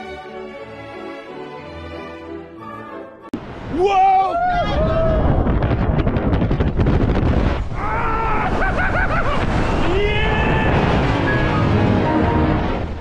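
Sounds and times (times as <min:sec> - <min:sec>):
man yelling: 0:03.7 - 0:05.3, 0:09.9 - 0:10.9
wind rushing over microphone: 0:04.4 - 0:13.0.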